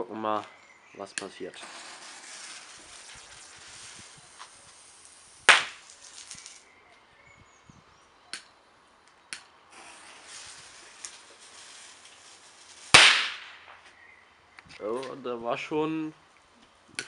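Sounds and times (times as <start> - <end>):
firework cracks: 1.2 - 6.6, 9.4 - 14.0
firework fuse hissing: 1.2 - 6.6, 9.7 - 13.9
firework bang: 5.4 - 6.6, 9.8 - 13.8.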